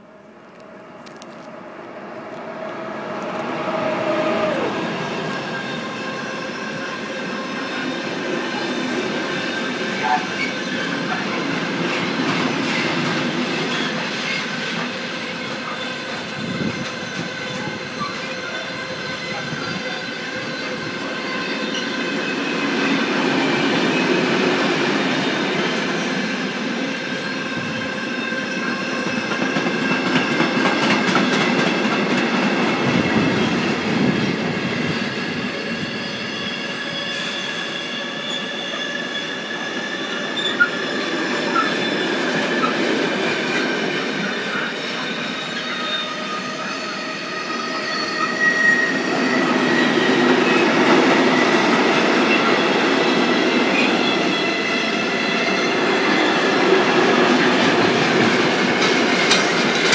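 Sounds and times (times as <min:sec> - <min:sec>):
high-pitched wheel squeal: 0:34.8 - 0:42.8, 0:44.5 - 0:50.6
freight train wagons rattling: 0:57.4 - 0:59.9.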